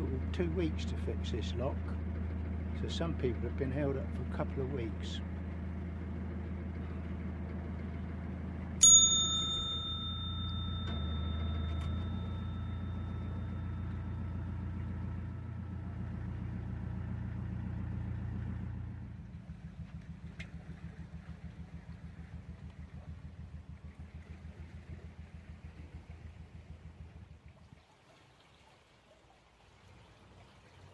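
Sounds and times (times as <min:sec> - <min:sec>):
diesel engine running: 0:00.0 - 0:27.6
small bell ringing: 0:08.8 - 0:15.0.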